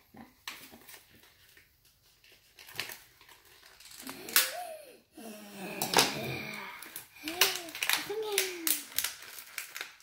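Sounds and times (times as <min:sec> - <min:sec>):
foil wrapper crinkling: 0:00.5 - 0:04.5, 0:06.8 - 0:10.0.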